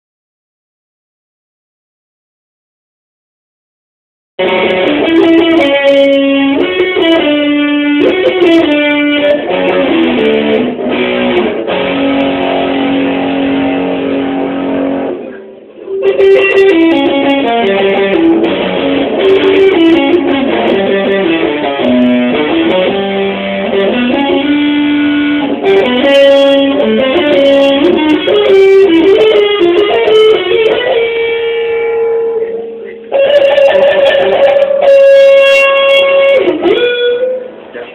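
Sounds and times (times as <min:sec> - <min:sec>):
music with stepping melody: 0:04.4 - 0:15.2, 0:16.0 - 0:31.6.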